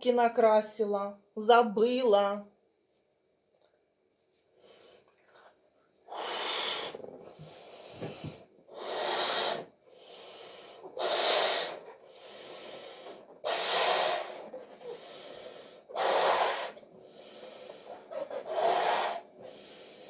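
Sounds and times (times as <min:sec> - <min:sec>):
person blowing up balloon: 0:06.1 - 0:20.0.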